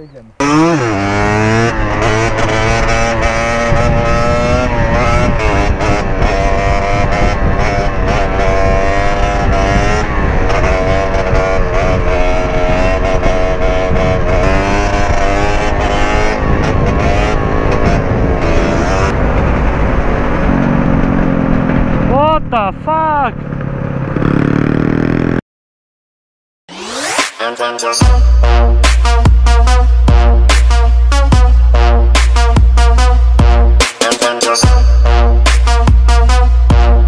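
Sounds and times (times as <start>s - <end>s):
motorbike engine revving: 0.0s - 25.4s, 28.0s - 37.0s
wind rumble on microphone: 1.5s - 22.5s.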